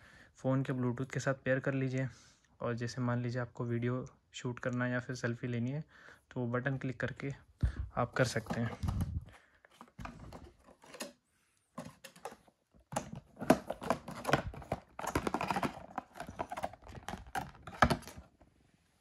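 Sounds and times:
plastic packaging crackling: 0:12.1 - 0:18.3.

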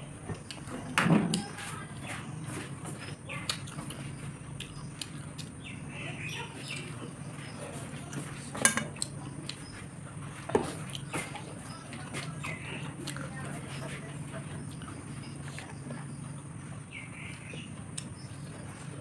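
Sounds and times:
steady low hum: 0:00.0 - 0:19.0
chewing and biting: 0:02.5 - 0:05.8, 0:06.6 - 0:16.4.

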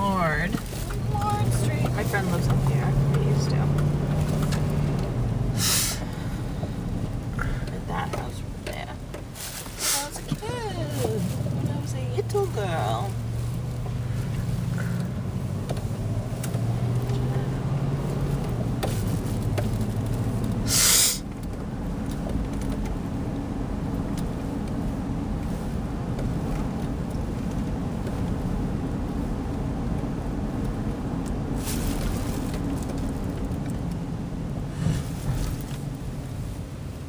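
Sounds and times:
car engine hum and road noise: 0:00.0 - 0:37.0
burst of hiss-like noise: 0:05.6 - 0:06.1, 0:20.7 - 0:21.2.

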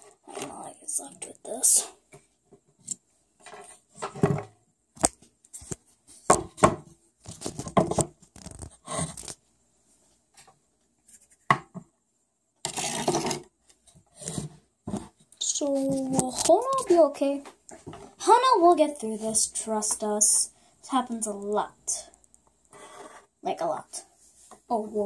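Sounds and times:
rustling and scraping: 0:07.2 - 0:11.5, 0:12.7 - 0:18.2, 0:22.7 - 0:23.3.

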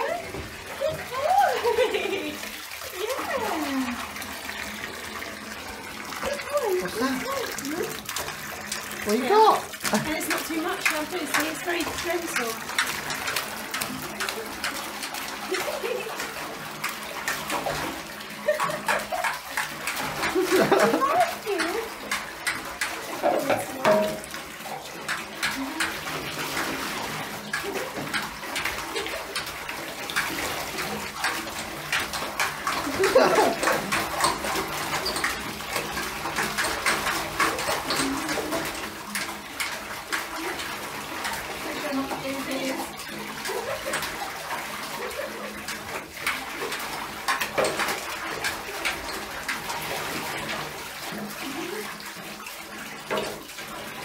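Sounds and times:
water splashing in a bathtub: 0:00.0 - 0:54.0.

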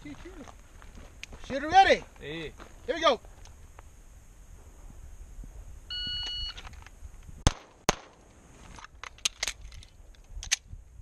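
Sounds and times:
shot timer beep: 0:05.9 - 0:06.6.

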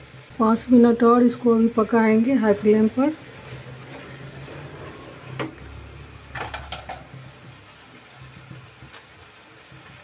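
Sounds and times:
wooden spatula scraping a pan: 0:03.2 - 0:05.6.

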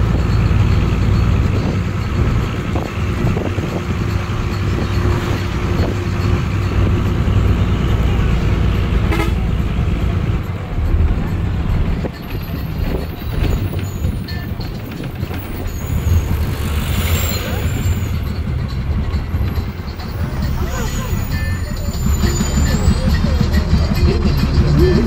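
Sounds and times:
bus engine and road rumble: 0:00.0 - 0:25.0
bus horn toot: 0:08.6 - 0:10.0, 0:20.2 - 0:25.0.

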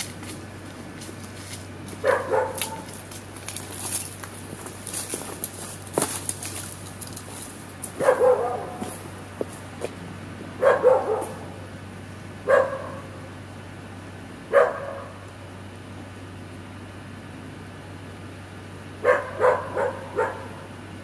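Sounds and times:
dog barking: 0:02.0 - 0:02.9, 0:08.0 - 0:08.9, 0:10.6 - 0:11.6, 0:12.4 - 0:13.2, 0:14.5 - 0:15.2, 0:19.0 - 0:20.7.

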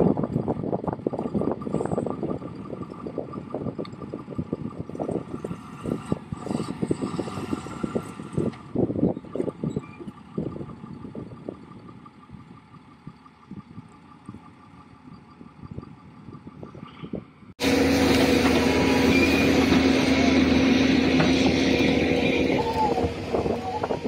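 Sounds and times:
heavy diesel engines running: 0:00.0 - 0:24.0.

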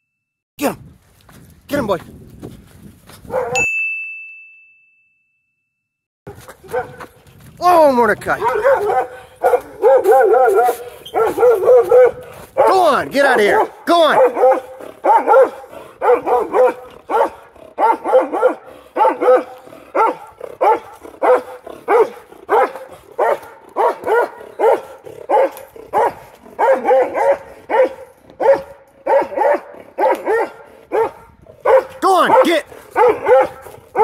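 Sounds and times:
dog barking: 0:03.3 - 0:03.6, 0:06.3 - 0:07.1, 0:08.3 - 0:34.0.

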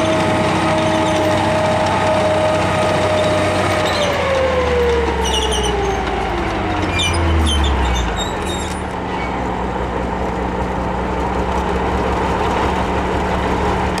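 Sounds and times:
short high squeaks: 0:00.0 - 0:04.4, 0:05.2 - 0:06.2, 0:06.8 - 0:09.6
tank diesel engine running: 0:00.0 - 0:14.0.

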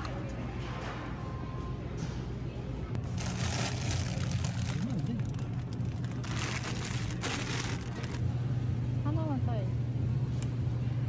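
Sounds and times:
steady low hum: 0:01.8 - 0:11.0
plastic bag crinkling: 0:03.0 - 0:08.2.

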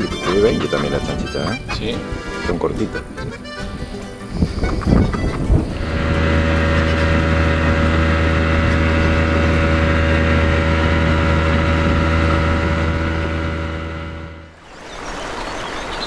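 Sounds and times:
outboard motor running: 0:04.3 - 0:14.6
water rushing along hull: 0:05.3 - 0:16.0.

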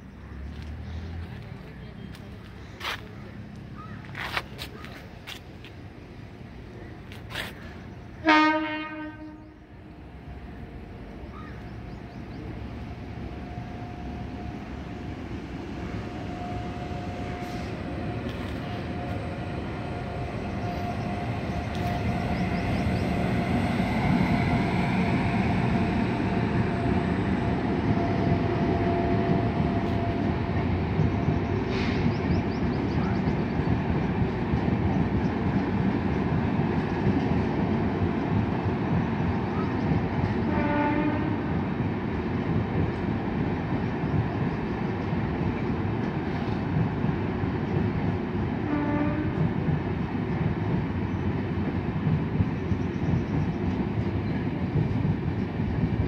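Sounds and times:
train wheels rumbling on rails: 0:00.1 - 0:56.0
train horn toot: 0:08.2 - 0:09.7, 0:40.4 - 0:41.5, 0:48.6 - 0:49.5.

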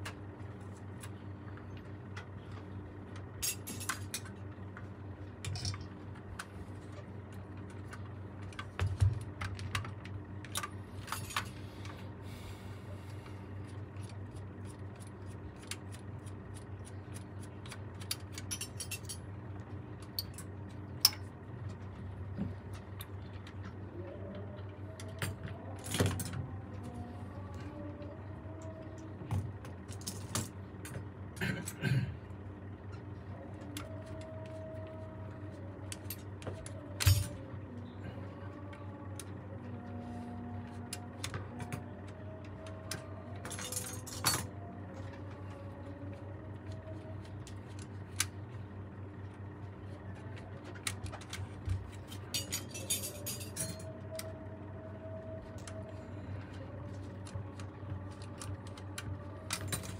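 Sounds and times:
steady low hum: 0:00.0 - 0:59.9
metal parts and tools clinking: 0:03.4 - 0:04.3, 0:05.4 - 0:05.9, 0:18.0 - 0:19.2, 0:43.4 - 0:44.5, 0:52.0 - 0:53.9.

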